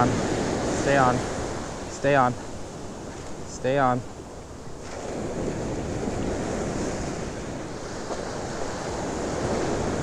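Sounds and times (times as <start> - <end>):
ocean surf washing up beach: 0.0 - 10.0
wind buffeting microphone: 4.1 - 10.0.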